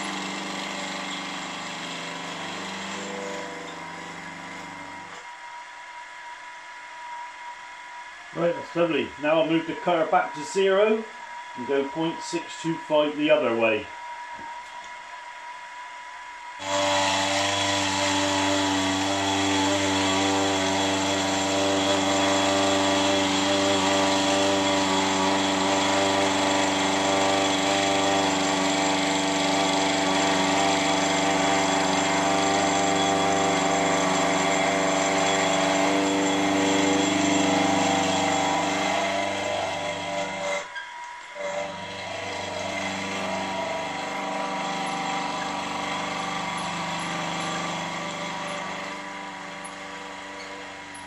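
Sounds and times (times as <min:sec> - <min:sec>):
milling machine whining hum: 0:00.0 - 0:51.0.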